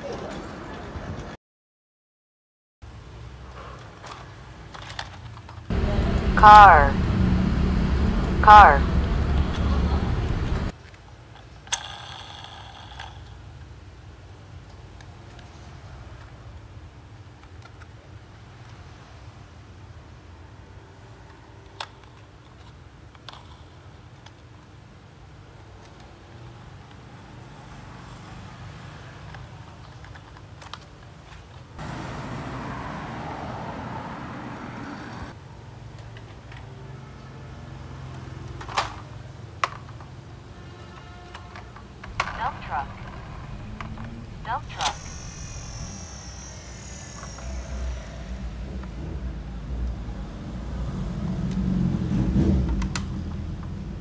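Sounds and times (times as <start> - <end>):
street traffic road noise: 0.0 - 1.4, 2.9 - 54.0
plastic toy car clicking: 4.0 - 5.7, 10.8 - 13.6, 17.4 - 18.0, 21.6 - 24.6, 29.3 - 31.6, 38.1 - 40.2
loud sound: 5.7 - 10.7, 42.0 - 50.1.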